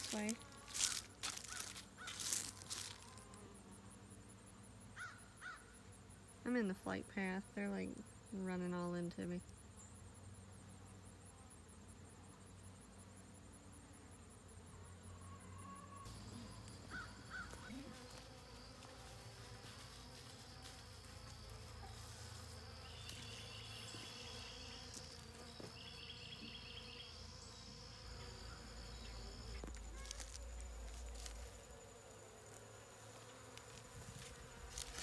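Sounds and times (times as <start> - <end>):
bees buzzing: 0.0 - 4.1, 16.0 - 35.0.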